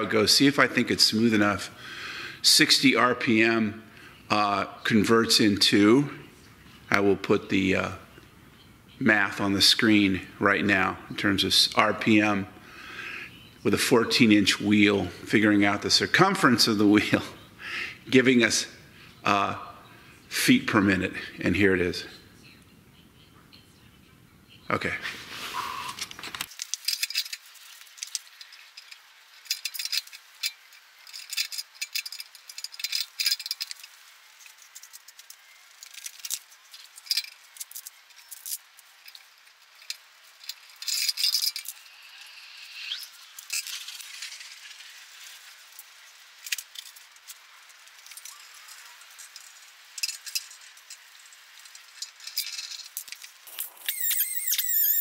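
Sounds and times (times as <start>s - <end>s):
ratchet and wrenches clinking: 26.5s - 55.0s.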